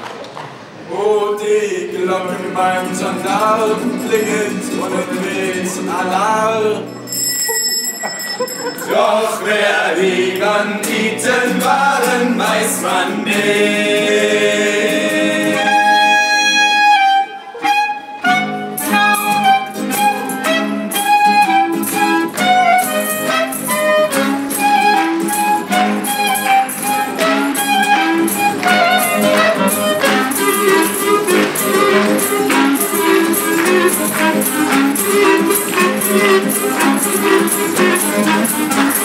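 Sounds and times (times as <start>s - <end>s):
strummed acoustic guitar: 1.6s - 7.1s, 8.6s - 39.0s
clarinets playing melody: 14.9s - 39.0s.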